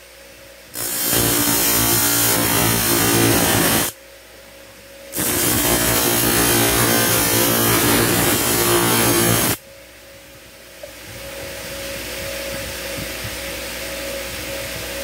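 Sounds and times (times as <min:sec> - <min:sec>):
blade grinding on grinder disc: 0:00.8 - 0:03.9, 0:05.2 - 0:09.6
grinder motor hum: 0:00.8 - 0:03.9, 0:05.2 - 0:09.6.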